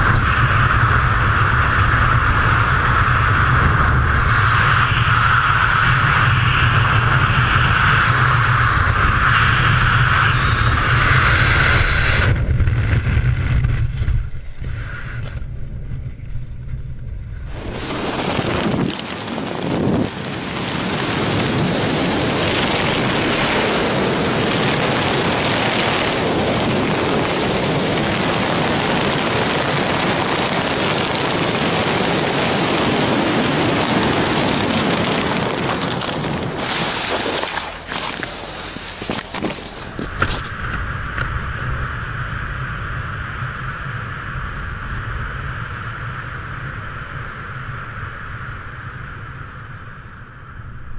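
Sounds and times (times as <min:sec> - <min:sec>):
wind rushing over microphone: 0:00.0 - 0:50.9.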